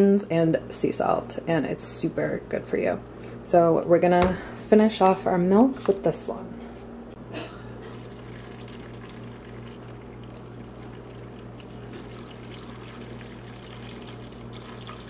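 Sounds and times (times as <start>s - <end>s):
steady low hum: 0.0s - 15.0s
milk pouring into blender jar: 7.9s - 15.0s.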